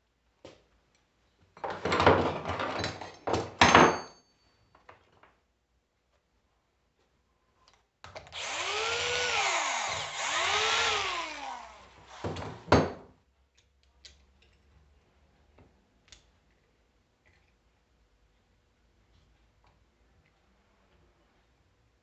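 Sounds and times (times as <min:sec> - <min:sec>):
cordless drill whining: 0:08.3 - 0:12.7.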